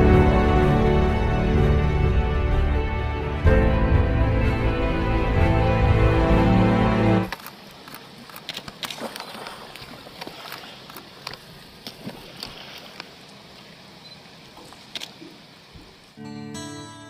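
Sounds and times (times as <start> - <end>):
rushing water: 0.0 - 16.2
wind: 0.0 - 16.2.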